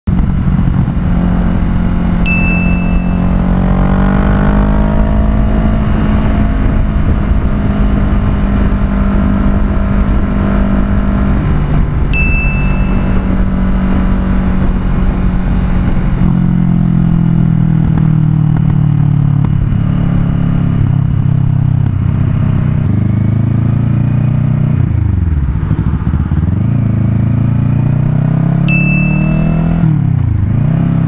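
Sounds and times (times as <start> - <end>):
wind rush on microphone: 0.1 - 23.5
motorcycle engine cruising: 0.1 - 31.0.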